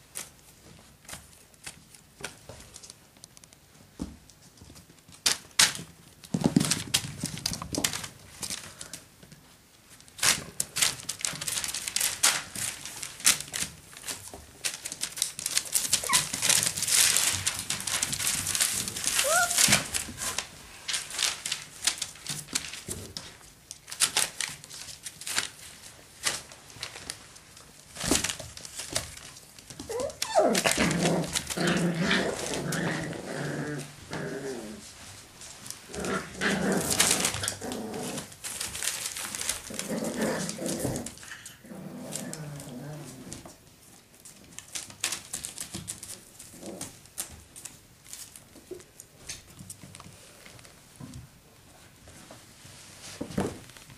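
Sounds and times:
newspaper rustling and crinkling: 0:04.5 - 0:50.9
puppy growls and yips: 0:15.9 - 0:16.7, 0:19.1 - 0:20.4, 0:29.8 - 0:34.9, 0:39.7 - 0:43.5.

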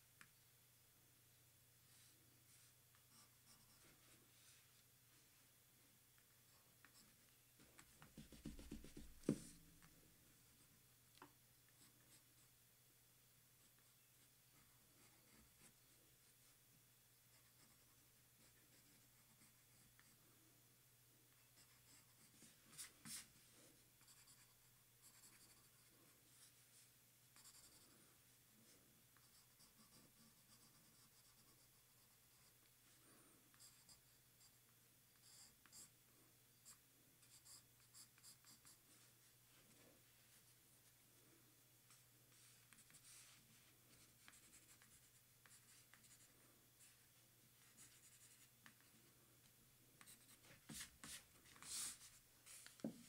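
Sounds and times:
pencil scratching on paper: 0:02.0 - 0:04.2, 0:14.6 - 0:15.8, 0:17.3 - 0:20.2, 0:21.6 - 0:23.3, 0:24.0 - 0:26.8, 0:27.4 - 0:28.0, 0:29.2 - 0:32.6, 0:33.5 - 0:35.9, 0:36.6 - 0:39.1, 0:41.9 - 0:47.0, 0:47.6 - 0:48.9, 0:50.0 - 0:53.0.

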